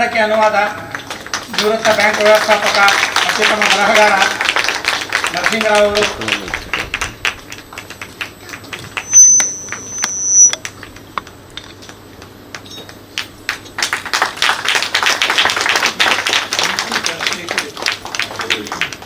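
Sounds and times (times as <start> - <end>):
audience clapping: 0.0 - 10.0, 10.6 - 19.0
high steady tone: 7.4 - 10.8.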